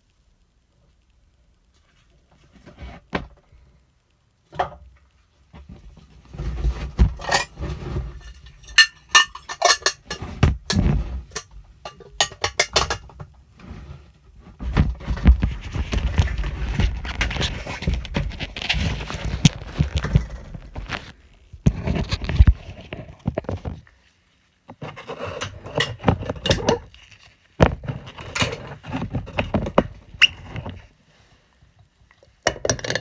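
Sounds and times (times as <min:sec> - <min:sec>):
rustling and knocking handling noise: 0:04.5 - 0:31.0, 0:32.4 - 0:33.0
petri dishes clicking and clattering: 0:07.2 - 0:07.6, 0:08.2 - 0:13.2, 0:32.5 - 0:33.0.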